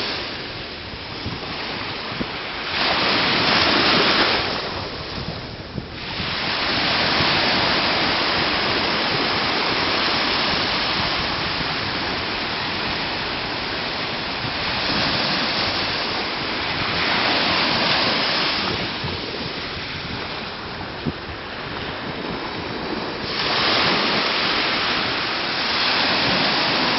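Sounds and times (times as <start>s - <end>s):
surf washing over sand: 0.0s - 26.9s
wind buffeting microphone: 0.0s - 26.9s.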